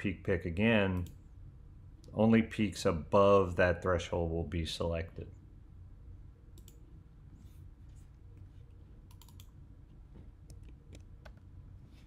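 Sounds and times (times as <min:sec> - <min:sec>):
low steady hum: 0:00.0 - 0:12.0
mouse and keyboard clicks: 0:09.1 - 0:09.5.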